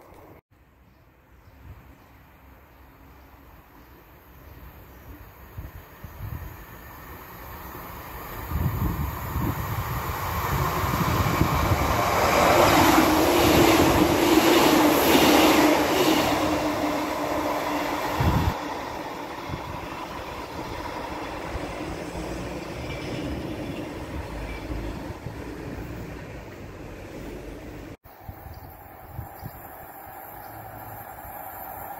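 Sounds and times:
diesel train passing: 0:02.3 - 0:31.9
wind rumble on microphone: 0:08.4 - 0:14.2, 0:18.1 - 0:18.6, 0:28.1 - 0:31.4.

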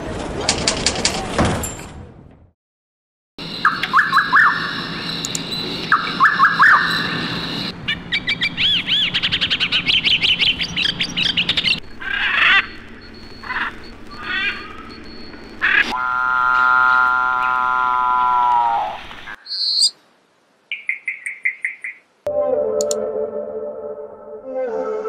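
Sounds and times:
bird chirps: 0:03.4 - 0:15.9, 0:20.7 - 0:22.1
birds calling: 0:03.4 - 0:20.0, 0:20.7 - 0:22.1
steady high tone: 0:22.3 - 0:25.0.

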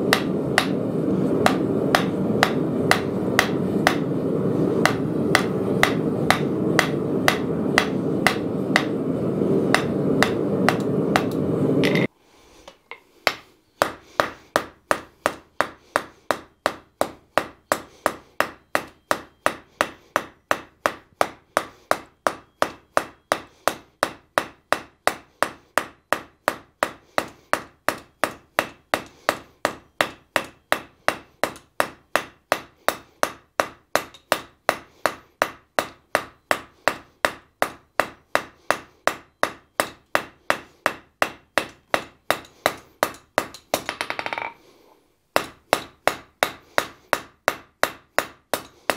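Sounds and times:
hammer striking steel on anvil: 0:00.0 - 0:04.2, 0:04.8 - 0:09.0, 0:09.6 - 0:12.1, 0:13.3 - 0:44.6, 0:45.4 - 0:48.9
low rushing noise: 0:00.0 - 0:12.1.

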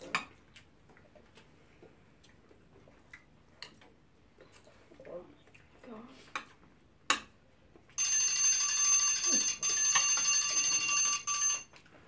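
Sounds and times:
faint chewing: 0:00.0 - 0:06.8.

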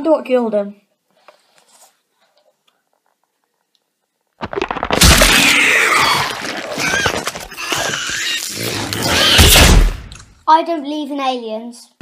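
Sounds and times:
creature bursting sound effect: 0:04.4 - 0:10.1.

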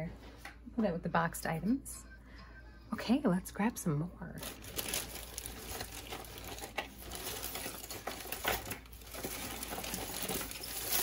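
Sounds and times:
plastic bag crinkling: 0:04.4 - 0:11.0.

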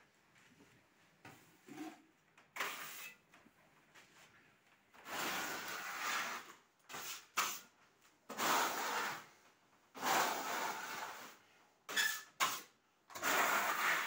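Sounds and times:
metal scraper rasping on wall: 0:08.3 - 0:09.3, 0:10.0 - 0:14.0.

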